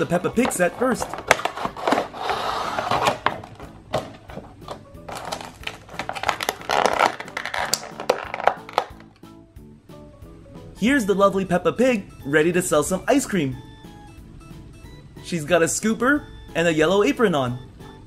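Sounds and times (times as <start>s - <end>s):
plastic packaging crinkling: 0.0s - 9.2s
background music: 0.0s - 18.0s.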